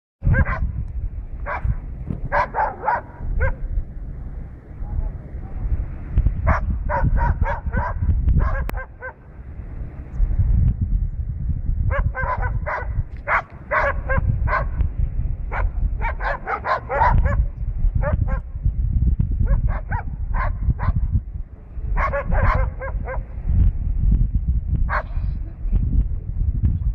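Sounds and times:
dogs barking: 0.2 - 0.8, 1.4 - 3.7, 6.4 - 9.3, 11.9 - 14.8, 15.5 - 18.5, 19.4 - 21.0, 21.9 - 23.4, 24.9 - 25.2
low rumble: 0.2 - 26.9.

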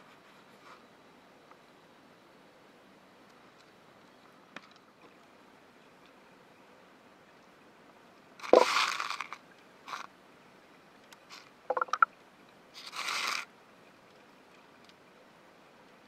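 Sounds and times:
underwater scraping and crunching: 8.4 - 9.4.

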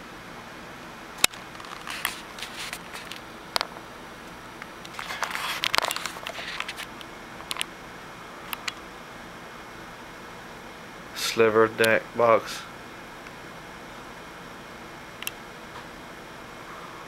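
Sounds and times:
steady background hiss: 0.0 - 17.0
camera handling clicks and rustles: 4.9 - 7.7.

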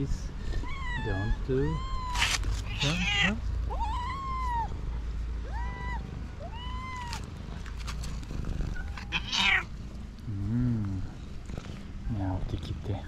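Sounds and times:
cat meowing: 0.5 - 4.7, 5.4 - 7.6, 8.7 - 9.7
cat growling: 1.9 - 3.4, 5.7 - 12.0
cat rasping hiss: 2.1 - 3.2.

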